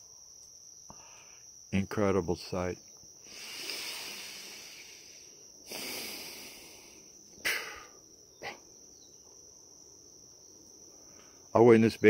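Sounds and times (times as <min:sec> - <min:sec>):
crickets chirring: 0:00.0 - 0:12.0
man breathing: 0:00.9 - 0:01.6, 0:03.2 - 0:08.6
mouth sound: 0:03.3 - 0:08.7.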